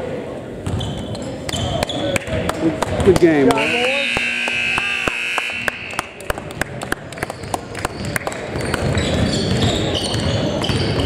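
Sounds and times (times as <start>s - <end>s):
scoreboard horn buzzing: 3.4s - 7.0s.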